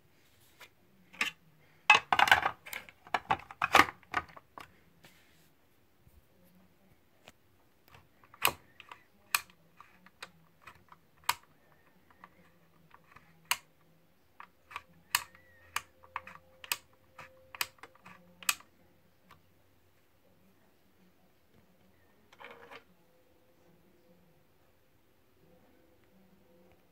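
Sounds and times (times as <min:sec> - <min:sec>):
sharp plastic clicks: 0:07.9 - 0:11.5.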